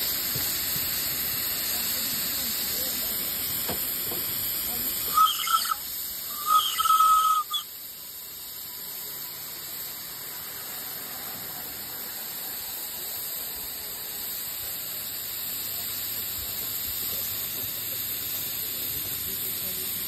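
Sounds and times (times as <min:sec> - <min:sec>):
steam hissing: 0:00.0 - 0:20.0
brief high squeal: 0:05.1 - 0:05.8, 0:06.4 - 0:07.6.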